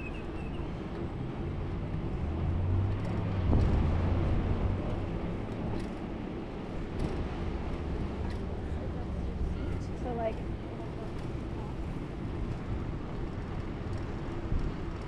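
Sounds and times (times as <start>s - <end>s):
steady traffic noise: 0.0s - 15.0s
vehicle passing by: 2.2s - 5.3s.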